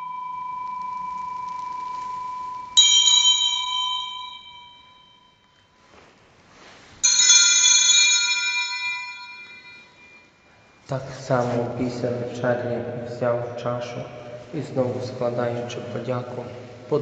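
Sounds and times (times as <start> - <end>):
bell ringing: 0.0 - 5.9, 7.0 - 10.9.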